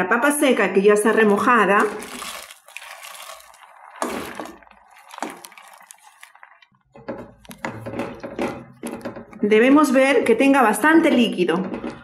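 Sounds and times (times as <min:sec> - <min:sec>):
potato pieces pouring into pot: 0:00.9 - 0:06.6.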